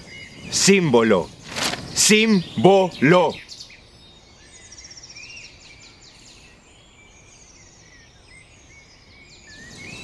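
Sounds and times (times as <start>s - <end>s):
high bird trill: 0.0s - 5.6s
faint outdoor hiss: 0.0s - 10.0s
small birds chirping: 0.0s - 10.0s
man speaking: 0.5s - 3.4s.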